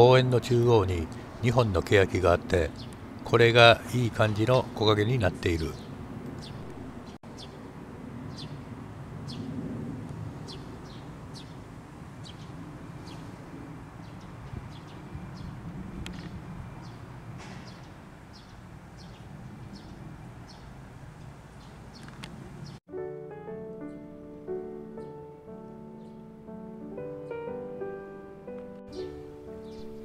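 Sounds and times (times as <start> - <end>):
small birds chirping: 2.5 - 3.1, 5.4 - 7.7, 8.3 - 8.6, 9.2 - 9.6, 10.4 - 13.4, 14.0 - 22.8, 25.9 - 26.3, 28.9 - 30.0.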